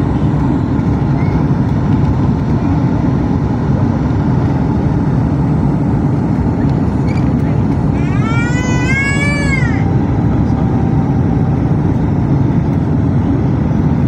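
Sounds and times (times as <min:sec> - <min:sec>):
jet engine cabin roar: 0:00.0 - 0:14.0.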